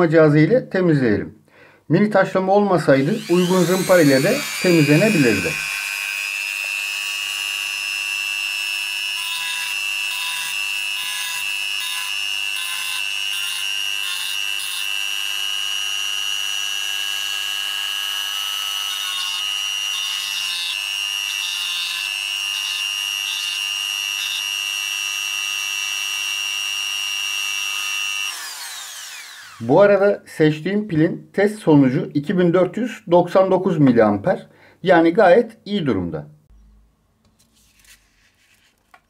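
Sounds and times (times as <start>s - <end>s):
rotary tool whining: 3.0s - 29.7s.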